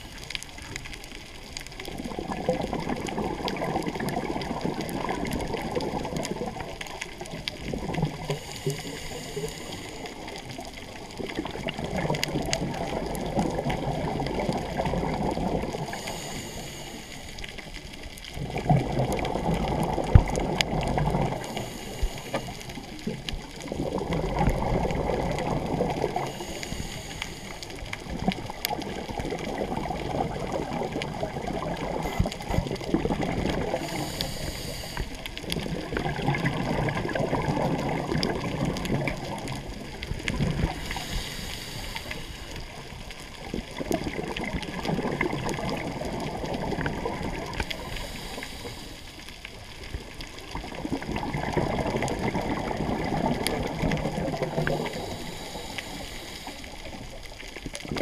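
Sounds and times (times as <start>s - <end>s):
exhaled bubbles rumbling: 0.0s - 58.0s
regulator hissing inhale: 8.3s - 10.3s, 15.8s - 17.7s, 21.4s - 23.0s, 26.2s - 27.8s, 33.7s - 35.4s, 40.7s - 42.8s, 47.6s - 49.3s, 54.5s - 57.1s.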